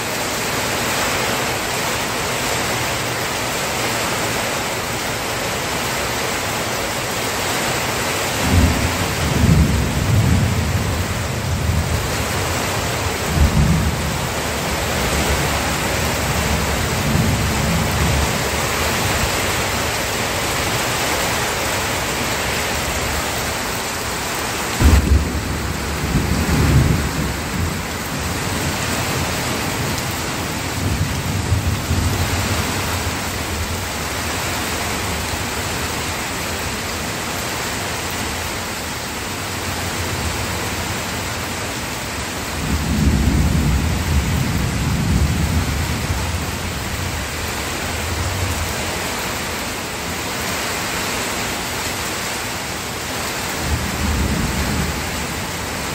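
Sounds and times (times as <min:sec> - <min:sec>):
steady rain: 0:00.0 - 0:55.9
thunder rumbling: 0:08.4 - 0:34.4.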